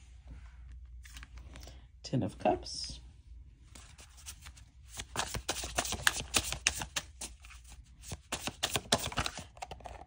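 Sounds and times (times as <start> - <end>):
cards rustling: 3.7 - 9.8.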